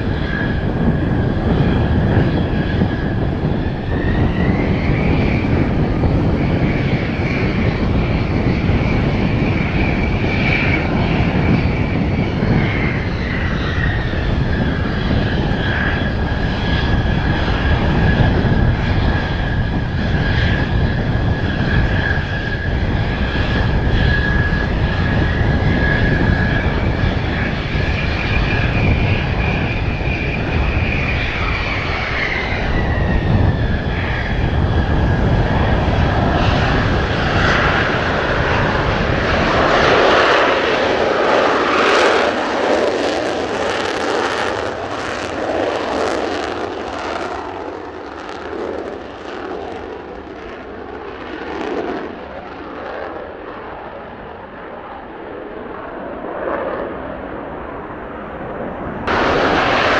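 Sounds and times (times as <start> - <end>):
jet engine whine: 0.0 - 59.9
wind buffeting microphone: 0.0 - 59.9
low rumble: 59.0 - 59.9.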